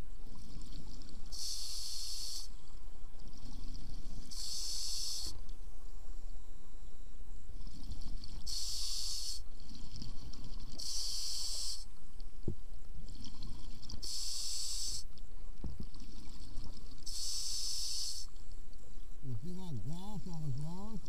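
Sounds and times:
regulator hiss on inhalation: 0:01.3 - 0:02.6, 0:04.3 - 0:05.4, 0:08.5 - 0:09.5, 0:10.8 - 0:11.9, 0:14.0 - 0:15.1, 0:17.0 - 0:18.3.

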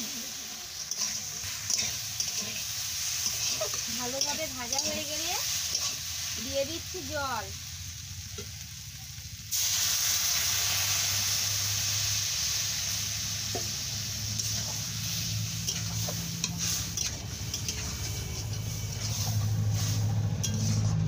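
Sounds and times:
metal spatula scraping pan: 0:00.0 - 0:06.2, 0:14.3 - 0:21.0
water sizzling in hot pan: 0:00.0 - 0:21.0.

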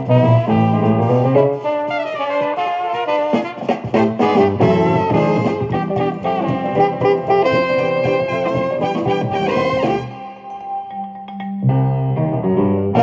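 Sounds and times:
music from a record player: 0:03.4 - 0:10.8.

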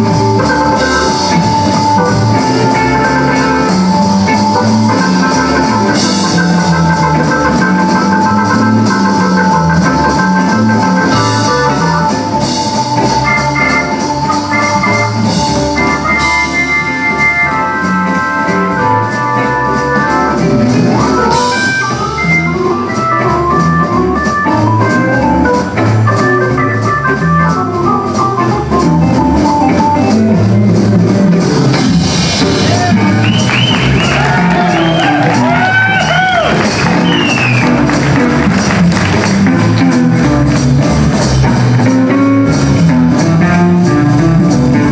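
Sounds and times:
harmonica bent notes: 0:00.0 - 0:30.7
blues band playing: 0:00.0 - 0:44.9
organ solo: 0:00.0 - 0:44.9.

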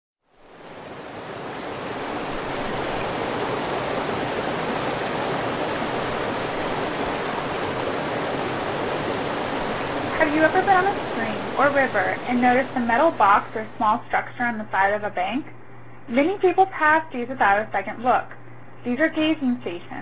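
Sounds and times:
rushing river water: 0:00.3 - 0:14.0.

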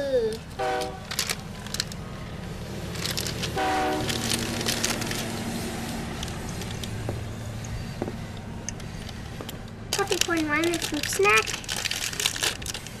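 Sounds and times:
train rumbling: 0:00.3 - 0:13.0
train horn toot: 0:00.6 - 0:01.0, 0:03.6 - 0:04.2
plastic snack packet crinkling: 0:01.0 - 0:02.0, 0:02.8 - 0:05.4, 0:09.9 - 0:13.0.

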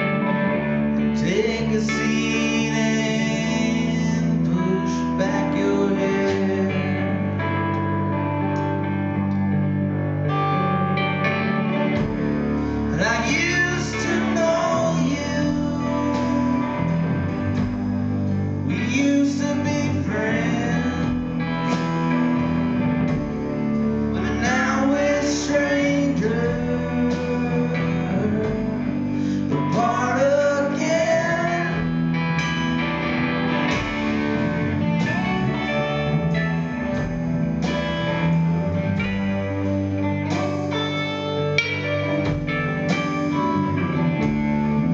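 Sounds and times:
drums: 0:00.0 - 0:44.9
electric guitar: 0:00.0 - 0:44.9
keyboard: 0:00.0 - 0:44.9
man singing: 0:01.0 - 0:07.7, 0:12.9 - 0:22.6, 0:23.5 - 0:32.4.

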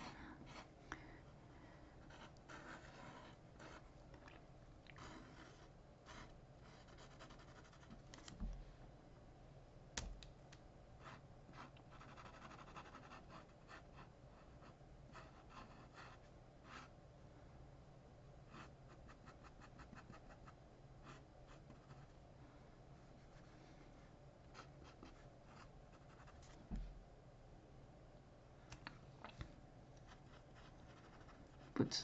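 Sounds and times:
marker pen scratching on paper: 0:02.0 - 0:03.9, 0:05.0 - 0:08.3, 0:11.0 - 0:16.9
soft thumps: 0:26.6 - 0:27.0.

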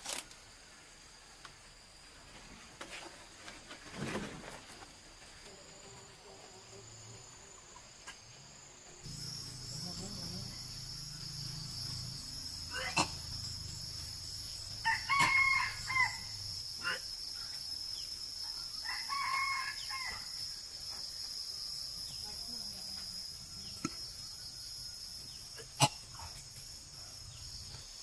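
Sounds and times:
high drone of insects: 0:00.0 - 0:28.0
rooster crowing: 0:13.8 - 0:16.6, 0:18.7 - 0:20.4.

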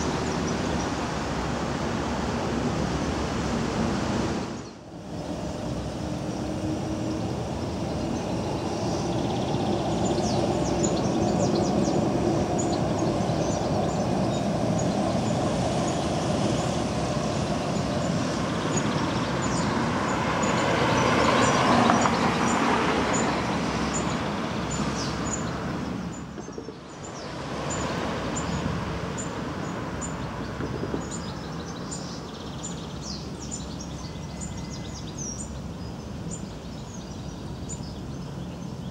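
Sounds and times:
street traffic noise: 0:00.0 - 0:38.9
birds chirping: 0:04.5 - 0:38.9
tram rolling along track: 0:05.0 - 0:27.2.

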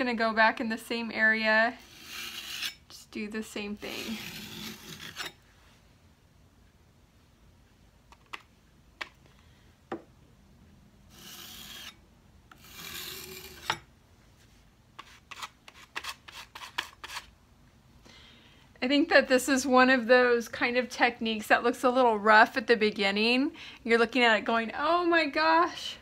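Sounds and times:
putty knife scraping wood: 0:01.8 - 0:02.8, 0:03.9 - 0:05.4, 0:11.1 - 0:13.9, 0:15.0 - 0:17.3.

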